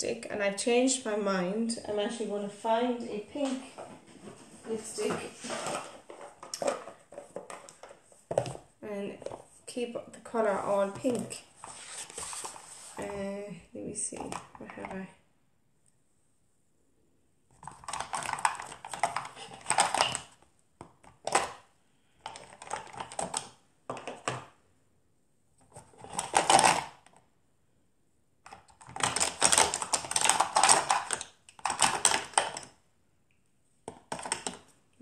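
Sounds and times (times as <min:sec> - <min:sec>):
plastic cases clattering: 0:03.4 - 0:09.5, 0:17.6 - 0:20.3, 0:21.0 - 0:21.6, 0:22.2 - 0:24.5, 0:25.7 - 0:27.0, 0:28.5 - 0:32.8, 0:33.9 - 0:34.7.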